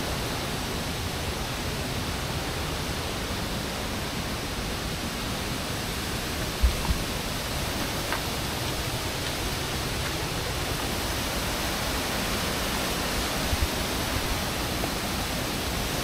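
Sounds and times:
waterfall rushing: 0.0 - 16.0
low thumps: 6.5 - 9.6.

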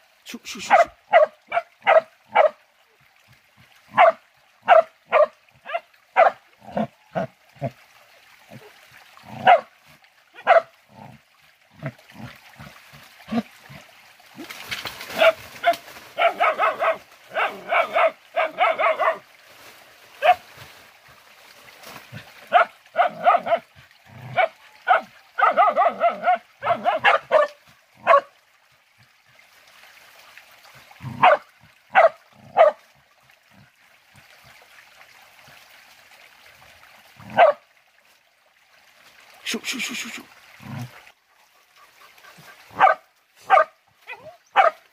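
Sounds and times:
dogs barking and yelping: 9.4 - 9.7, 10.4 - 10.7, 15.1 - 19.2, 20.2 - 20.4, 22.5 - 23.7, 24.3 - 28.3, 31.2 - 32.8, 41.8 - 44.8.

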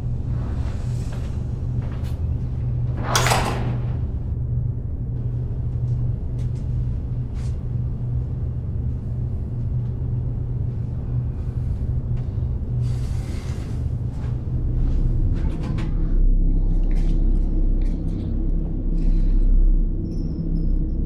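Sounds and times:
low rumbling drone: 0.0 - 21.0.

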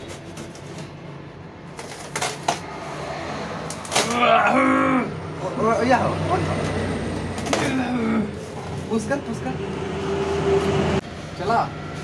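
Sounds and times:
person's drawn-out vocal sound: 4.0 - 5.2, 7.7 - 8.5.

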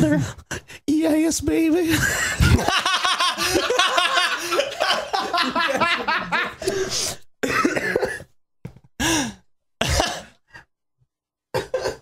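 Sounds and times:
men laughing: 1.9 - 6.9.

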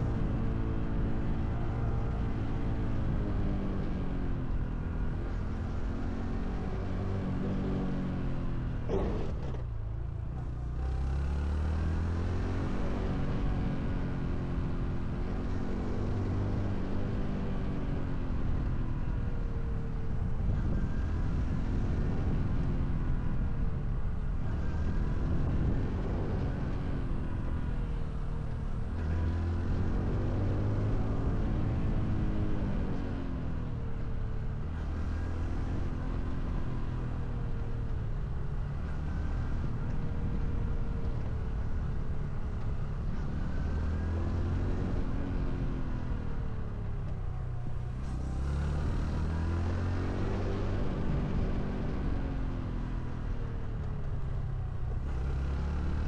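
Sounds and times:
motorcycle engine revving: 5.0 - 17.8, 47.3 - 56.0.

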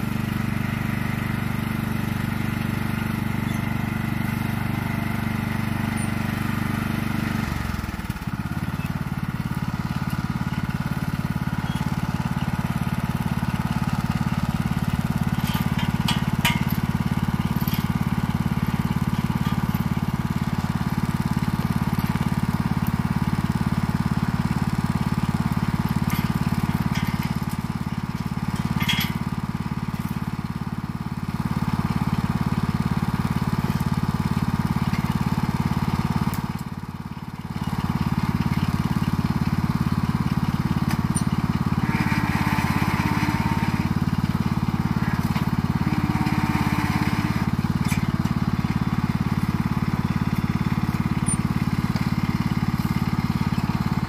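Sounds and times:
lawn tractor engine running: 0.0 - 54.0
metal clinks: 28.6 - 29.2.

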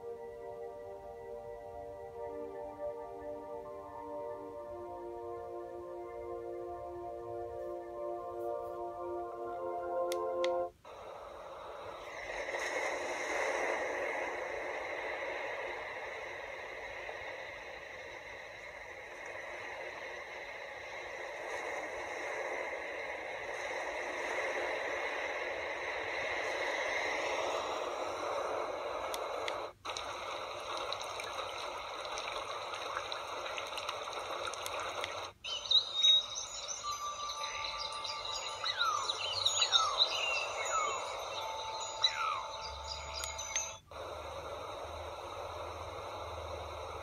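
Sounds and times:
steady rushing hiss: 0.0 - 47.0
birds chirping: 33.5 - 43.9.

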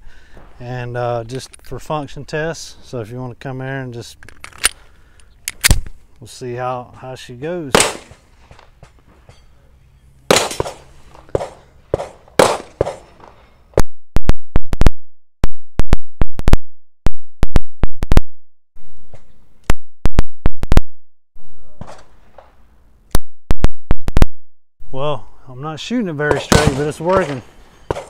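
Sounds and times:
pistol gunshots: 7.7 - 8.2, 10.3 - 13.3, 26.3 - 28.0.

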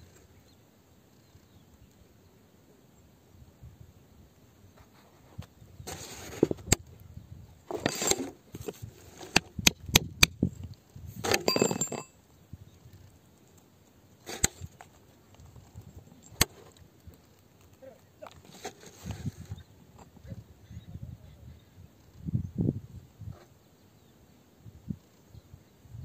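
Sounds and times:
metal bar scraping rock: 7.7 - 10.4, 11.1 - 12.2
metal bar clinking on rock: 11.2 - 12.2.

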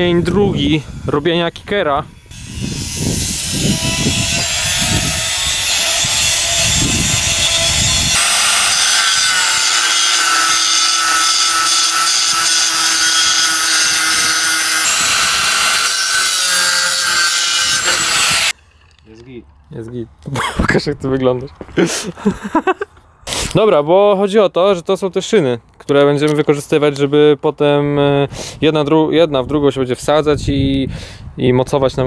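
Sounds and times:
angle grinder cutting steel: 2.2 - 18.6.

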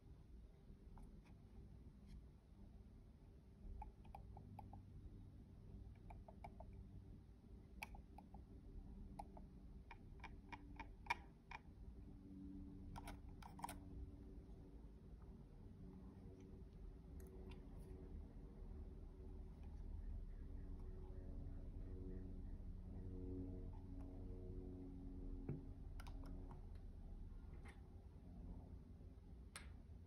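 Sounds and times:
computer mouse clicks: 3.7 - 4.9, 5.9 - 6.8, 7.7 - 11.8, 12.8 - 13.8, 25.8 - 26.8.

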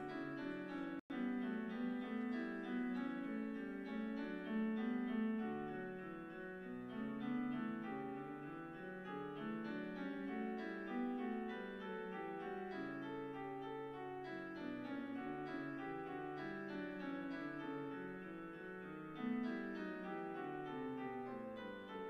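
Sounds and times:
piano music: 0.0 - 22.0.

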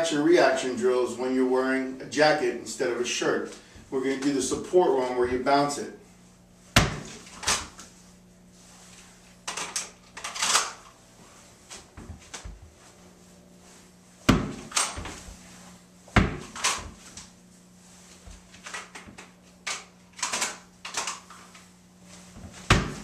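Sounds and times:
jacket fabric rustling: 6.0 - 10.1, 10.7 - 23.0
ball bouncing on wooden floor: 14.3 - 14.7, 16.2 - 16.5.

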